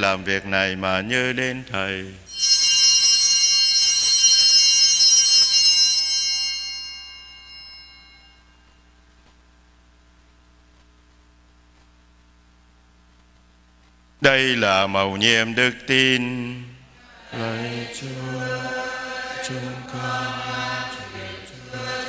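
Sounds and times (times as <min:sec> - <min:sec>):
altar bells jangling: 0:02.3 - 0:08.4.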